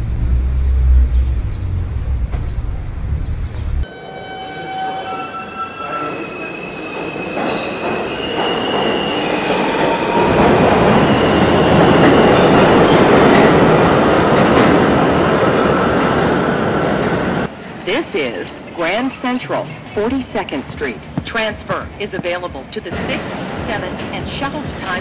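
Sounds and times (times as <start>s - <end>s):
train rumble and rush: 0.0s - 4.2s, 4.8s - 18.8s, 19.7s - 25.0s
train wheels squealing on rails: 3.8s - 13.2s.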